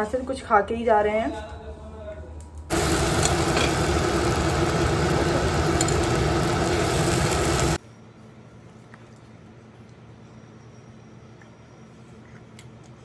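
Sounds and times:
electric motor running: 0:02.7 - 0:07.8.

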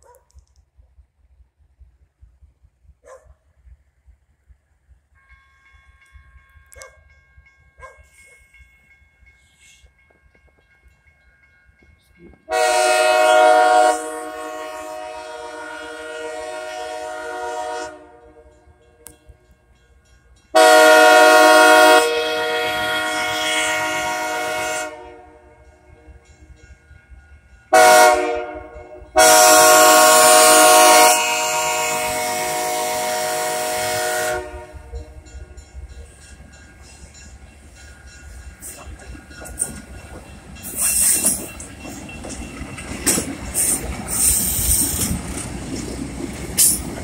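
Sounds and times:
low rumble of train: 0:00.0 - 0:47.0
locomotive air horn blasts: 0:05.2 - 0:06.9, 0:12.5 - 0:18.7, 0:20.5 - 0:25.6, 0:27.7 - 0:35.2.

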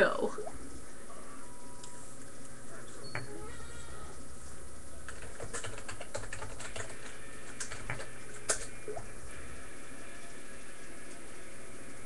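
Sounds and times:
steady low hum: 0:00.0 - 0:12.0
keyboard typing: 0:05.1 - 0:08.7.

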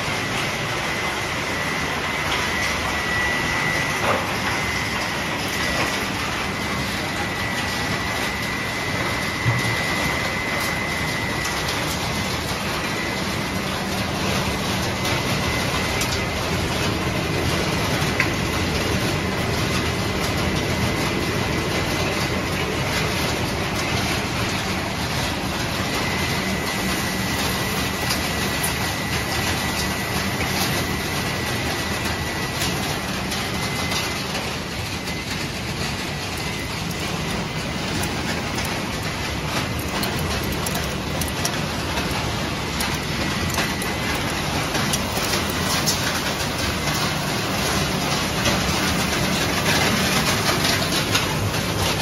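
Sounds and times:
high whine: 0:00.0 - 0:18.3
industrial crushing machinery: 0:00.0 - 0:52.0.

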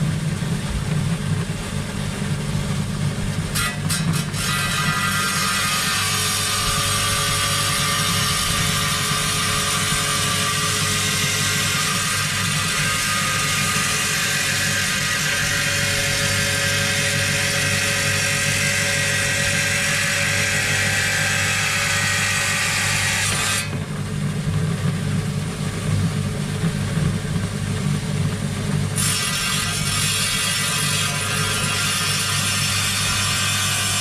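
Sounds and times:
saw motor hum: 0:00.0 - 0:34.0
blade grinding stone: 0:03.5 - 0:23.8, 0:29.0 - 0:34.0.

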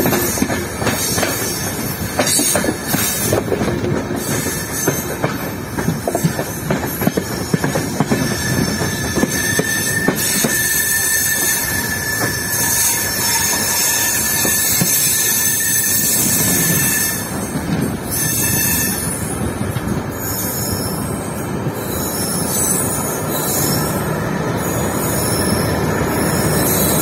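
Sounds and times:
train wheels rumbling on rails: 0:00.0 - 0:27.0
thin high squeal: 0:08.2 - 0:17.3.

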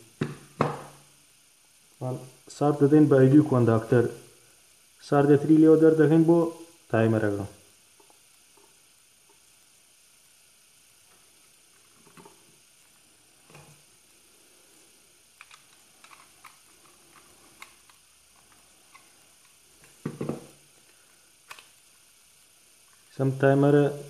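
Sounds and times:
plastic parts handled: 0:15.4 - 0:19.1
screwdriver clicks and scrapes: 0:15.4 - 0:19.1.

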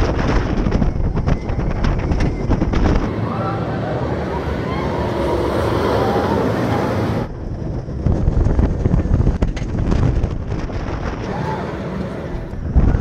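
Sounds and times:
rattles and clicks: 0:00.0 - 0:03.1, 0:08.0 - 0:13.0
wind buffeting microphone: 0:00.0 - 0:03.6, 0:04.3 - 0:13.0
roller coaster rumbling on track: 0:00.0 - 0:13.0.

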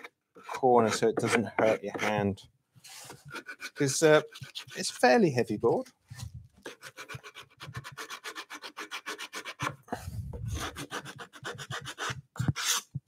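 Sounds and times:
sandpaper rubbing wood: 0:06.7 - 0:09.7, 0:10.5 - 0:12.9.

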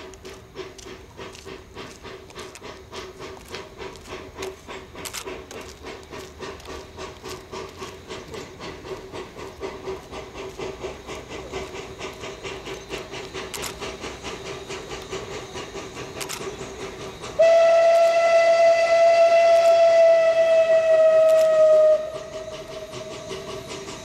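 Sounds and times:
steam locomotive exhaust beating: 0:00.0 - 0:24.0
steam whistle: 0:16.9 - 0:24.0.

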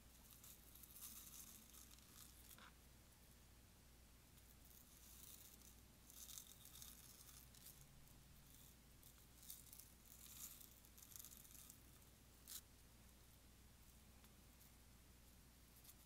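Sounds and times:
tiny beads rattling: 0:00.2 - 0:02.6, 0:04.6 - 0:12.6.

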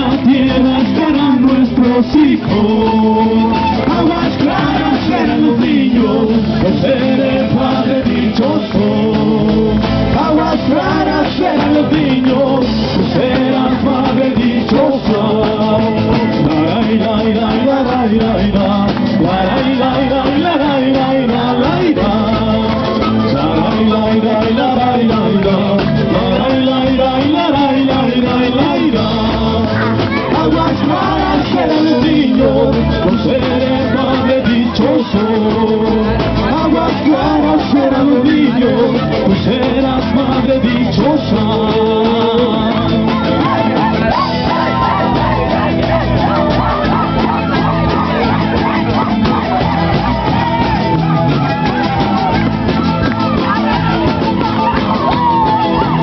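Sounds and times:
electric bass: 0:00.0 - 0:56.0
strummed guitars: 0:00.0 - 0:56.0
panpipes melody: 0:43.1 - 0:56.0.

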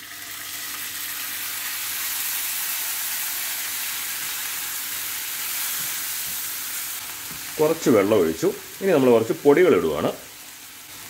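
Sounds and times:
onions sizzling in oil: 0:00.0 - 0:11.0.

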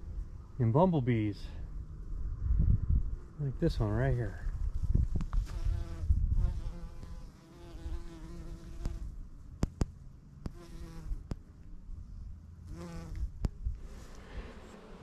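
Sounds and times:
low rumble: 0:01.4 - 0:05.2
bumblebee buzzing: 0:05.4 - 0:09.1, 0:10.5 - 0:11.3, 0:12.7 - 0:15.0.

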